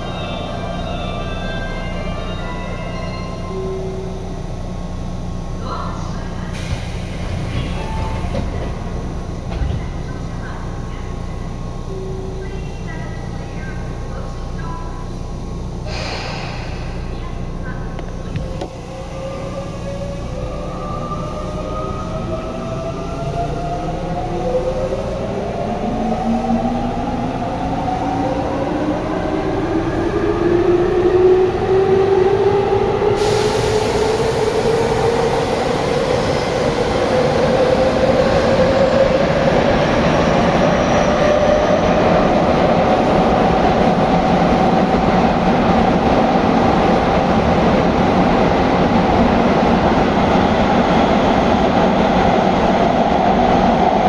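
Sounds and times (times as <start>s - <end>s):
hiss: 15.9s - 17.1s, 33.2s - 34.6s.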